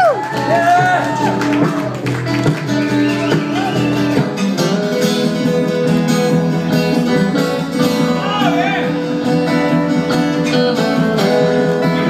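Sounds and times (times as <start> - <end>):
acoustic guitar strumming: 0.2 - 12.0
stand-up bass: 0.4 - 7.8.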